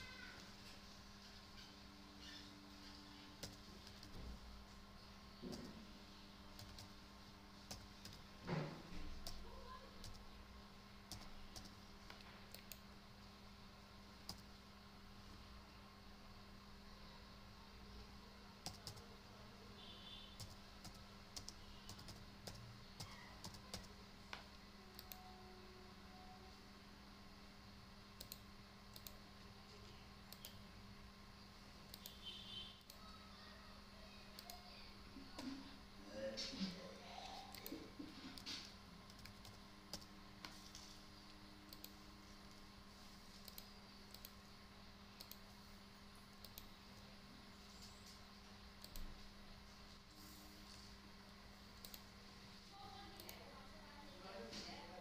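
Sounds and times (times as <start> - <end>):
low steady hum: 0.0 - 55.0
computer keyboard keystrokes: 3.4 - 4.2, 6.6 - 6.9, 7.7 - 8.2, 10.0 - 10.2, 11.1 - 12.8, 14.2 - 14.5, 18.6 - 19.0, 20.4 - 25.2, 28.2 - 29.2, 39.1 - 40.6
computer mouse clicks: 6.6 - 7.0, 11.1 - 12.9, 14.2 - 14.5, 18.6 - 19.0, 20.4 - 25.2, 28.2 - 29.2, 29.8 - 30.6, 31.9 - 33.1, 34.3 - 34.6, 37.5 - 42.6, 43.3 - 44.4, 45.1 - 45.5, 46.3 - 47.0, 48.8 - 49.2, 51.7 - 52.1, 53.2 - 53.4.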